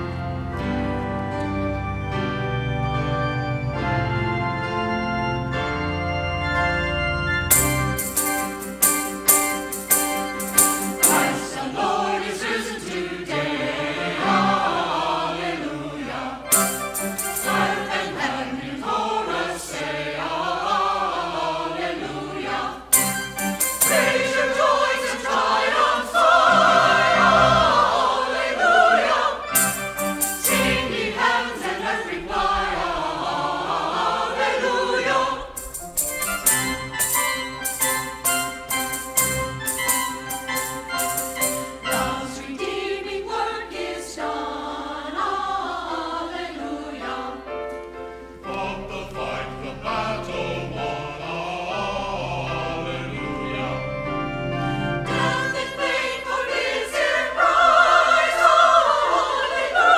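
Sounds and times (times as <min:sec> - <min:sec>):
church choir singing: 0:00.0 - 0:59.9
rhythmic accompaniment accents: 0:07.4 - 0:12.1, 0:16.5 - 0:18.4, 0:22.9 - 0:26.7, 0:29.5 - 0:32.2, 0:35.1 - 0:42.9.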